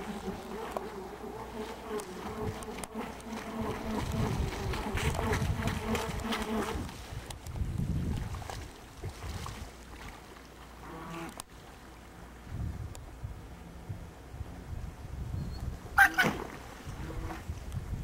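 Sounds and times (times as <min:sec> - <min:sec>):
model boat motor buzzing: 0:00.0 - 0:06.9.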